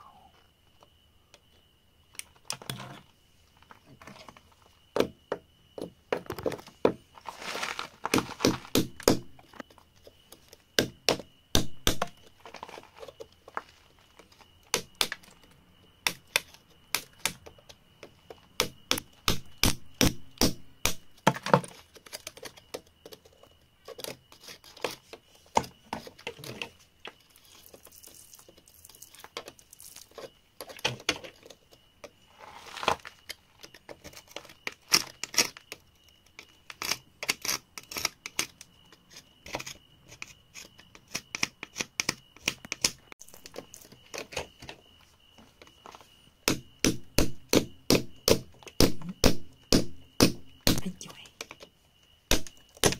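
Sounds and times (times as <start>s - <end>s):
metal pick scraping dirt and gravel: 2.5s - 3.1s, 7.2s - 9.2s, 32.3s - 35.7s.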